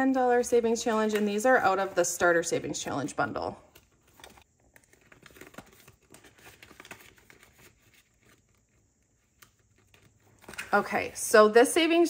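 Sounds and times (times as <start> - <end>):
plastic envelopes rustling: 0.3 - 11.1
paper rustling: 3.7 - 11.1.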